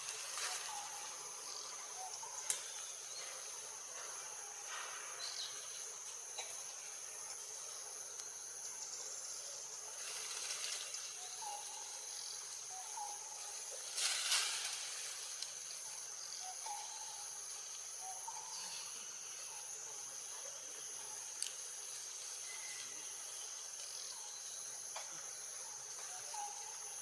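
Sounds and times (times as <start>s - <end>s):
high-pitched insect chorus: 0.0s - 27.0s
brief rustle: 13.8s - 15.5s.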